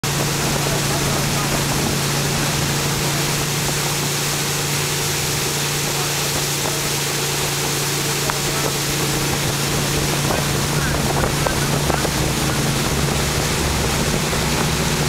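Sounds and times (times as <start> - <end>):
boat engine running: 0.0 - 15.0
rushing water: 0.0 - 15.0
wind noise: 7.5 - 15.0.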